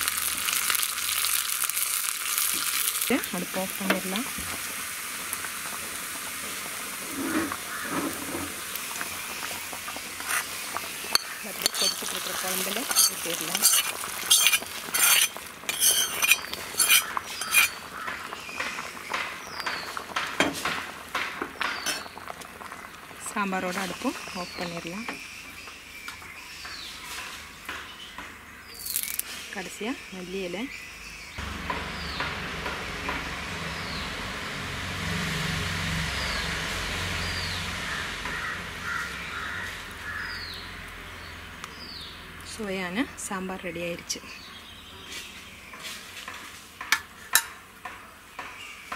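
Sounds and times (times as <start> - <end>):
food bubbling in pot: 0.0 - 27.0
metal ladle clinking against pot: 11.1 - 12.1, 12.8 - 17.7.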